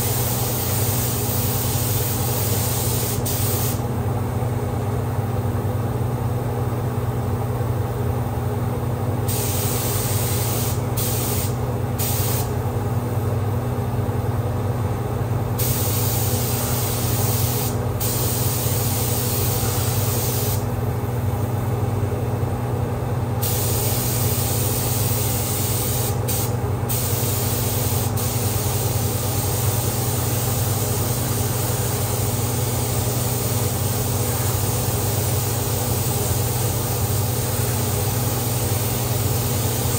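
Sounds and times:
paint spray gun hissing: 0.0 - 3.8, 9.3 - 12.5, 15.6 - 20.6, 23.4 - 37.5
exhaust fan drone: 0.0 - 39.9.

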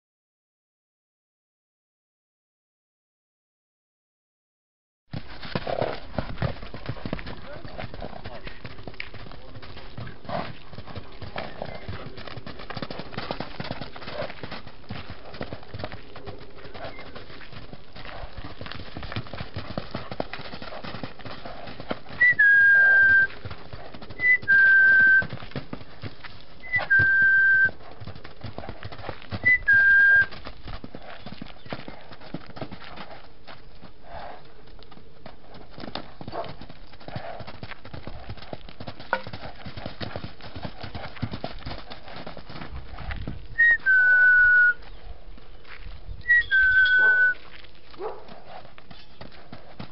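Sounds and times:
horse hoofbeats on sand: 5.1 - 49.9
person whistling: 22.2 - 23.3, 24.2 - 25.3, 26.6 - 27.7, 29.4 - 30.3, 43.6 - 44.8, 46.3 - 47.4.

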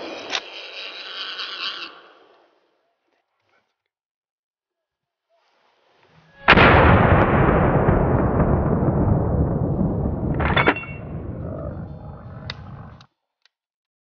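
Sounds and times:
gunshot with rumbling tail: 6.5 - 11.9
sharp crack: 6.5 - 13.0.

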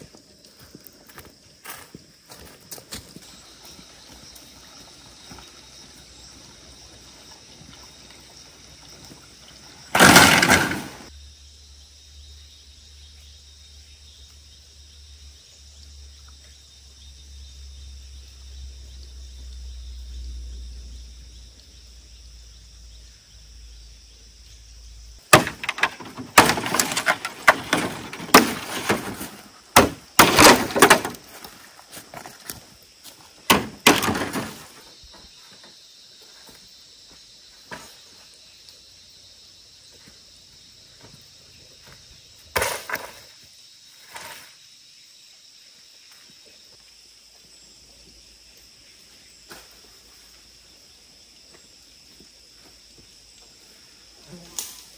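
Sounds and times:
sharp knocks and cracks: 9.9 - 11.1, 25.3 - 31.5, 33.5 - 34.7.

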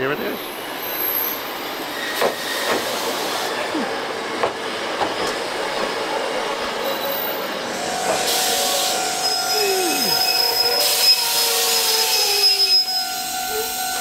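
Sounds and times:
train rolling noise: 0.1 - 14.0
train wheels knocking over rail joints: 4.4 - 5.9.

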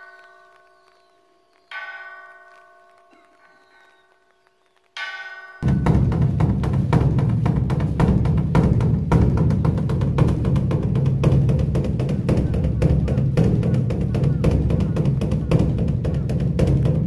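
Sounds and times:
large drum roll: 5.6 - 17.0.

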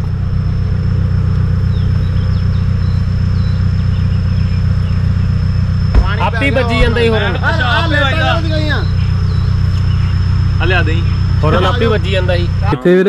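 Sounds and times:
vehicle engine rumbling: 0.0 - 13.0.

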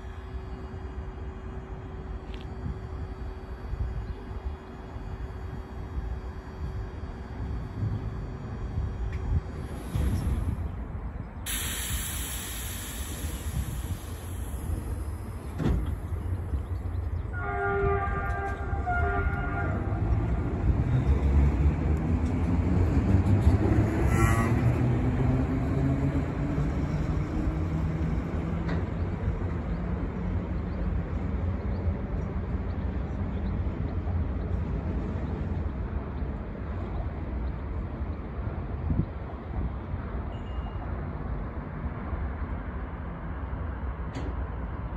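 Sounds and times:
high hiss: 11.5 - 15.4
train horn signal: 17.3 - 20.5, 24.0 - 24.7.

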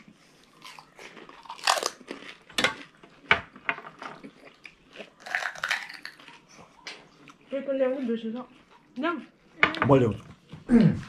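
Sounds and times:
crisp shells crunching when chewed: 0.4 - 3.0, 4.2 - 6.7.

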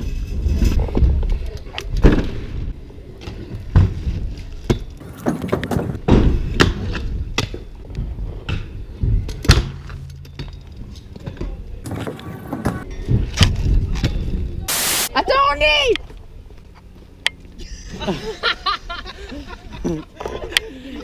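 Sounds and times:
scooter clacks and thuds: 3.2 - 10.6
scooter rolling over concrete: 4.7 - 6.2, 10.7 - 13.6.

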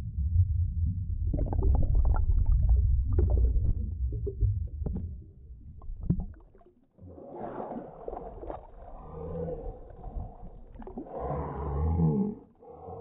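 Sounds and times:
low underwater rumble: 0.0 - 13.0
bubbles crackling and popping: 1.2 - 11.2.

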